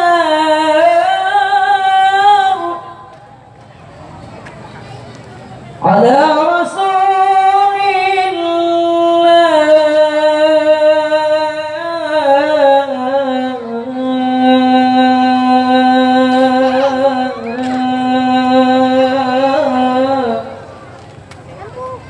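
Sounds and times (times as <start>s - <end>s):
man reciting melodically: 5.8s - 20.8s.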